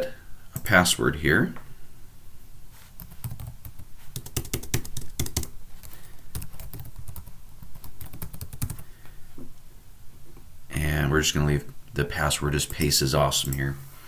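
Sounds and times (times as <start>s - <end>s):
keyboard typing: 3.0s - 8.8s.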